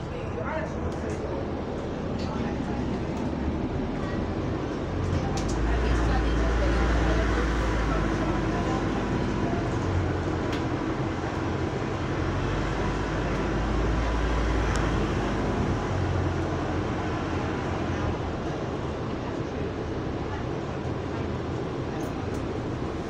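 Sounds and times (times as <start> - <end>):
bus diesel engine drone: 0.0 - 23.0
cooling fan whirr: 0.0 - 23.0
road noise: 0.0 - 23.0.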